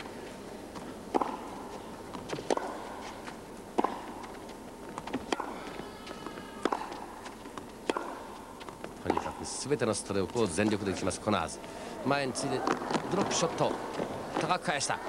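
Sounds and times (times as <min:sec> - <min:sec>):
crowd hum: 0:00.0 - 0:15.0
tennis racket hitting ball: 0:01.1 - 0:01.6, 0:02.2 - 0:09.5.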